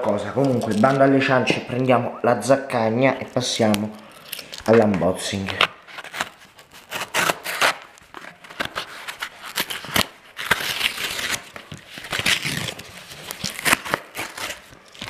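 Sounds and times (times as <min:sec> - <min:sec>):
cardboard tearing apart: 0:03.6 - 0:15.0.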